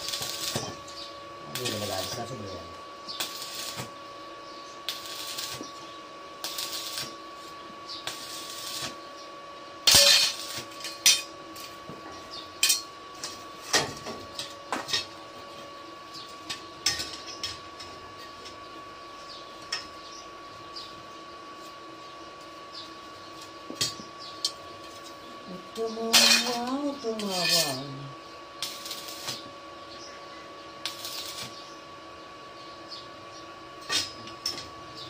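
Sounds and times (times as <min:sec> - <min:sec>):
welding arc crackling: 0:00.0 - 0:09.1, 0:09.8 - 0:11.9, 0:22.4 - 0:29.6, 0:30.8 - 0:31.8.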